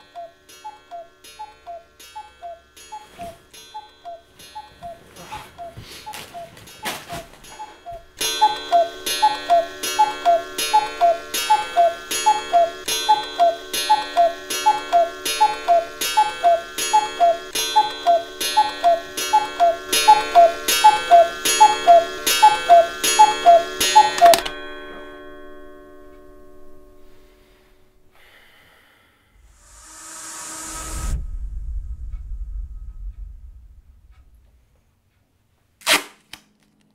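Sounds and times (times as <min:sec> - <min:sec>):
clock mechanism clicks: 0:00.0 - 0:24.6
cuckoo clock calling: 0:00.0 - 0:26.2
ringing tone: 0:00.0 - 0:27.6.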